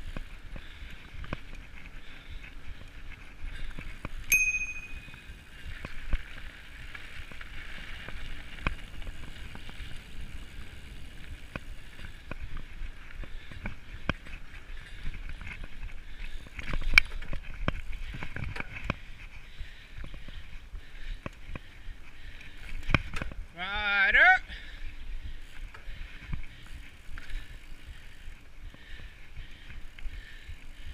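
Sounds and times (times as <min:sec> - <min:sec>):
bike rattling over bumps: 0:00.0 - 0:23.6, 0:24.4 - 0:30.9
bike tyres on dirt trail: 0:00.0 - 0:30.9.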